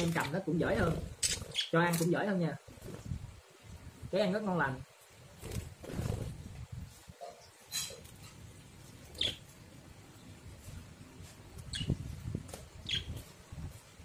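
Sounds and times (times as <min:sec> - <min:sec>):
budgerigars chirping: 0:01.2 - 0:01.8, 0:09.2 - 0:09.5, 0:12.8 - 0:13.1.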